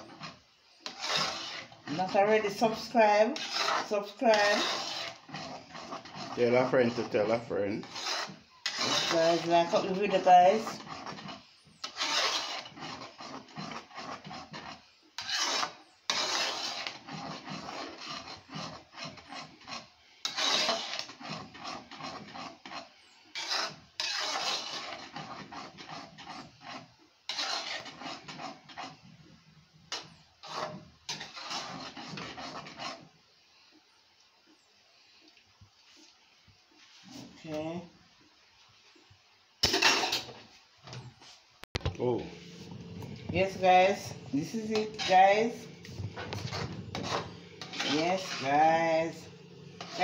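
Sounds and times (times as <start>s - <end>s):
spoon scraping a metal pot: 0.0s - 29.0s, 29.9s - 33.1s, 39.6s - 40.4s, 42.4s - 50.0s.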